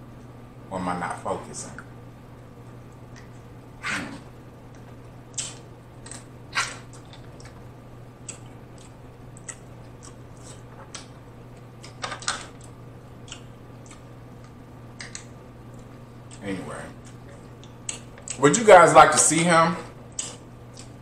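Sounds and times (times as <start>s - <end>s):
wet chewing smacks: 8.2s - 11.9s, 13.2s - 16.4s.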